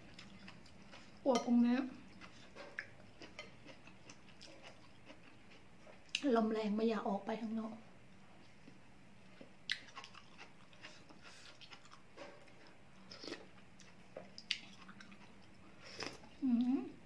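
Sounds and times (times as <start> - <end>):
person chewing: 0.1 - 1.2, 2.1 - 6.2, 9.3 - 16.3.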